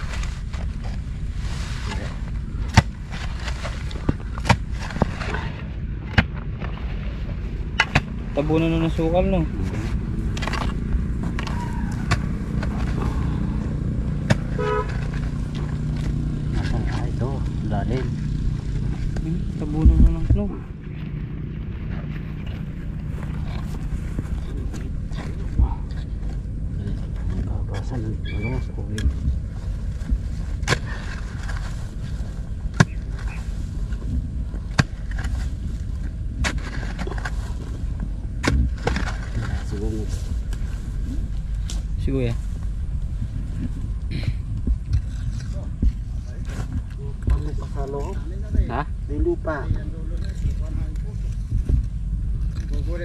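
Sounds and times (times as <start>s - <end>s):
steady low rumble: 0.0s - 53.0s
vehicle engine running: 0.0s - 53.0s
short horn toot: 14.5s - 14.9s.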